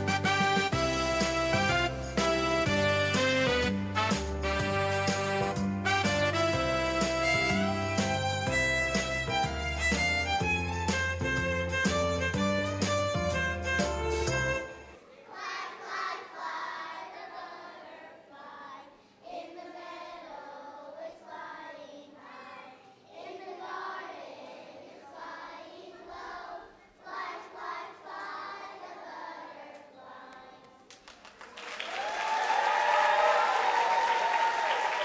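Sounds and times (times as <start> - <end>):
children's choir singing: 14.6 - 30.9
audience applause: 30.9 - 35.0.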